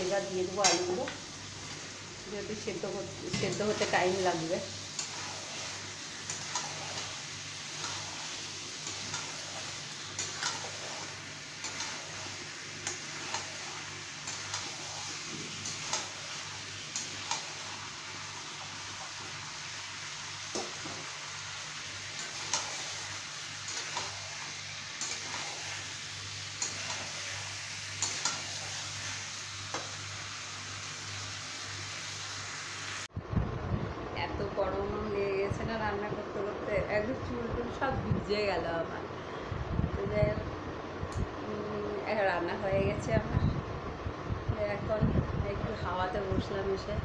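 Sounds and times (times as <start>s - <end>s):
curry sizzling in oil: 0.0s - 33.1s
metal spatula scraping pan: 5.0s - 16.4s, 25.0s - 26.0s, 26.6s - 30.0s.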